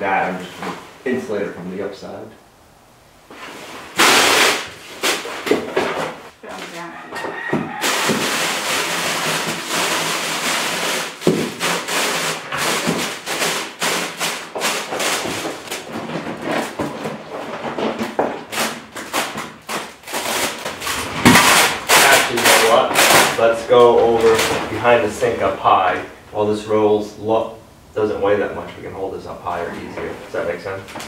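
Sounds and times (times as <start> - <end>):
tar paper crinkling: 7.8 - 25.4.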